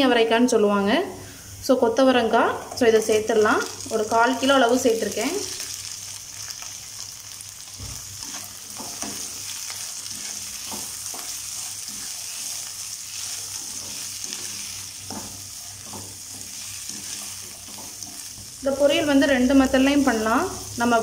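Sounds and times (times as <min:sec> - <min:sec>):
beans sizzling in hot oil: 0:01.3 - 0:21.0
spatula scraping pan: 0:07.9 - 0:18.4.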